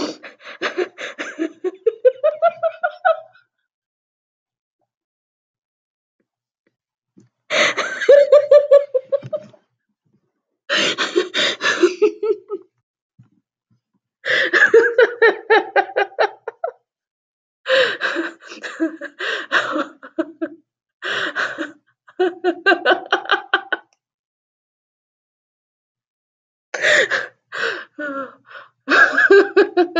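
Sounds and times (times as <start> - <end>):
woman laughing: 0.0 - 3.4, 7.5 - 9.5, 10.9 - 12.6, 14.3 - 16.7, 17.7 - 20.5, 21.4 - 23.9, 28.9 - 29.9.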